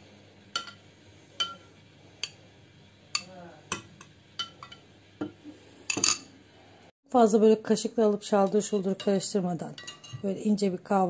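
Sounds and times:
utensil clinking against glass bowl: 0:01.4 - 0:02.4, 0:09.8 - 0:10.3.

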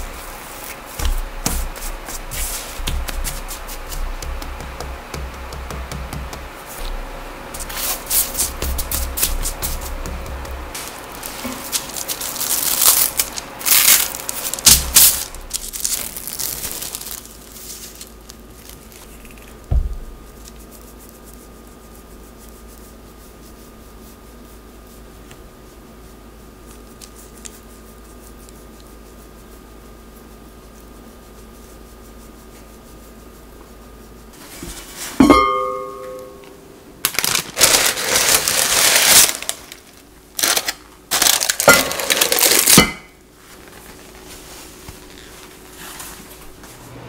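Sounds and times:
parchment paper crinkling: 0:00.0 - 0:07.0, 0:07.6 - 0:23.5, 0:37.0 - 0:42.8, 0:43.4 - 0:46.6
faint steady hum: 0:00.0 - 0:47.0
soft low thump: 0:19.7 - 0:20.2.

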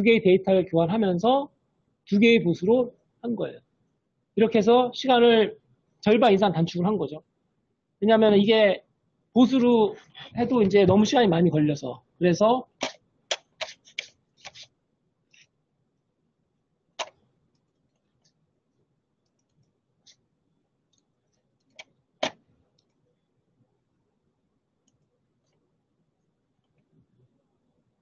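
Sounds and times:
computer mouse clicks: 0:12.8 - 0:14.7, 0:17.0 - 0:18.4, 0:19.2 - 0:20.2, 0:20.9 - 0:23.0.

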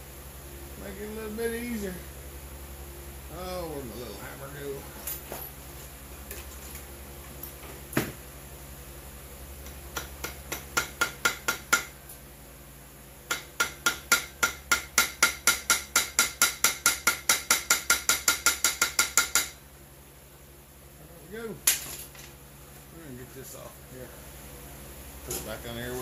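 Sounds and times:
small hammer tapping on metal: 0:09.6 - 0:12.0, 0:13.3 - 0:19.6.

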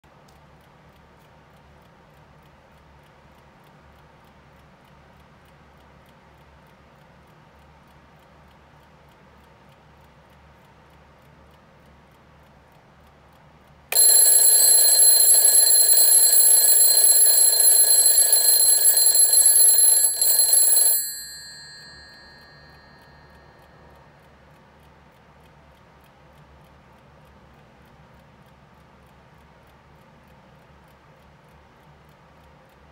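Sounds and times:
alarm clock bells ringing: 0:13.9 - 0:23.5.

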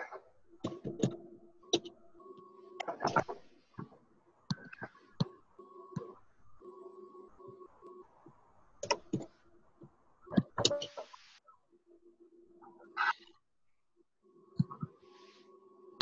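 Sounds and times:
faint hum: 0:00.0 - 0:16.0
computer keys and mouse clicking: 0:04.5 - 0:06.2, 0:08.8 - 0:09.4.

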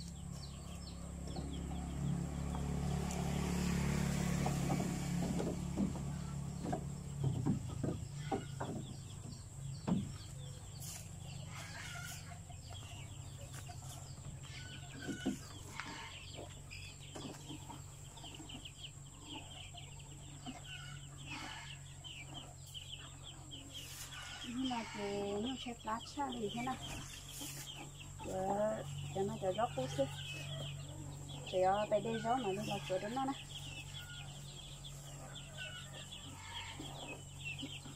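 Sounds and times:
chickens clucking and cheeping: 0:00.0 - 0:37.9.

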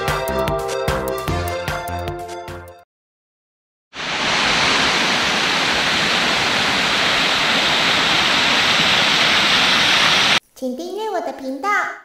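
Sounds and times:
waterfall roaring: 0:04.0 - 0:10.4.

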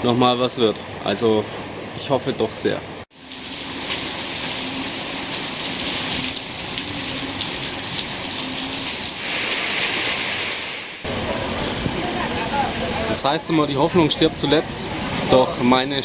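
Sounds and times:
heavy rain pouring: 0:03.1 - 0:13.4.

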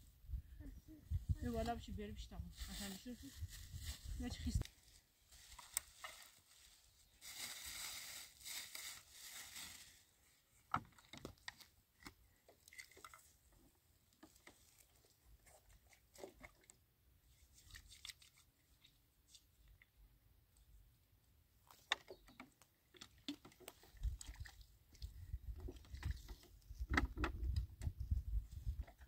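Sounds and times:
crinkling handling rustle: 0:02.5 - 0:12.1.

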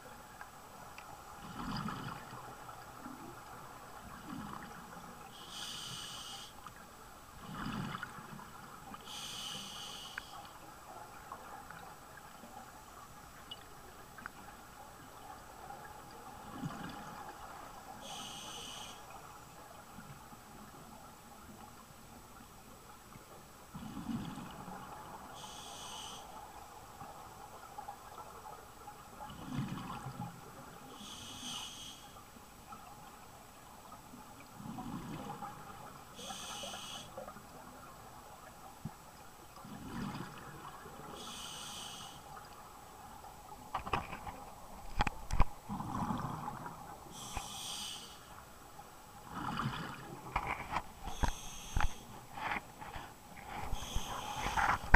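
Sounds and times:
diver breathing through regulator: 0:05.4 - 0:06.6, 0:09.0 - 0:10.4, 0:18.0 - 0:19.1, 0:25.4 - 0:26.3, 0:31.0 - 0:32.2, 0:36.2 - 0:37.2, 0:41.2 - 0:42.2, 0:47.1 - 0:48.3, 0:51.0 - 0:52.6, 0:53.5 - 0:54.9.

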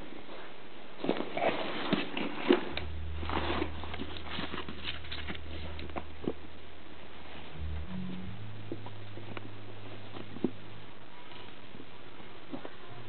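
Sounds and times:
steady low hum: 0:02.6 - 0:13.0.

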